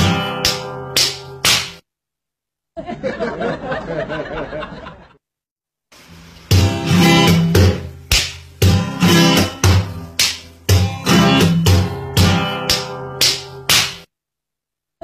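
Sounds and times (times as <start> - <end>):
strummed acoustic guitar: 0.0 - 1.5, 6.5 - 14.0.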